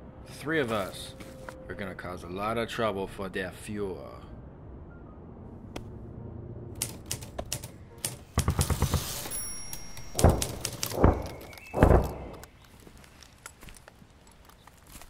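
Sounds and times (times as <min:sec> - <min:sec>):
typewriter keys striking: 0:06.8 - 0:12.4
heavy deep thuds: 0:10.2 - 0:12.5.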